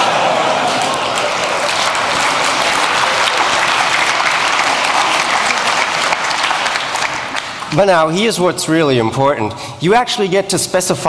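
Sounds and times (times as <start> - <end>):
audience applauding: 0.0 - 8.1.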